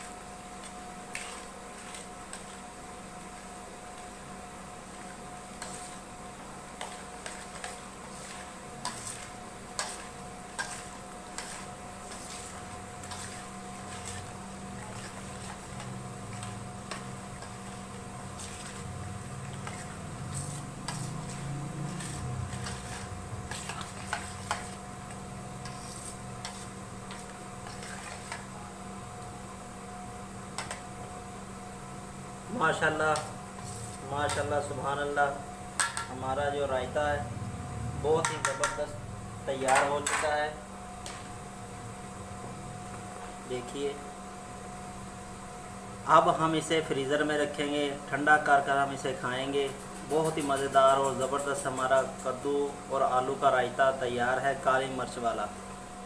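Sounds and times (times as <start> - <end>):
steady low hum: 0.0 - 56.0
spoon clinking and scraping bowl: 6.8 - 17.8, 22.0 - 24.8.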